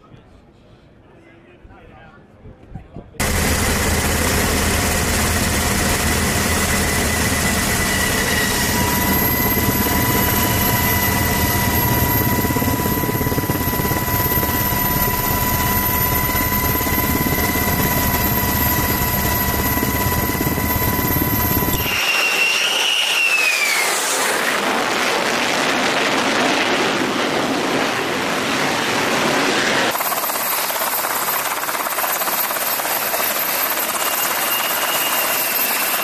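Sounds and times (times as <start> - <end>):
thin steady whine: 3.2 - 24.8
higher whine: 3.2 - 30.1
helicopter rotor and turbine drone: 3.2 - 36.0.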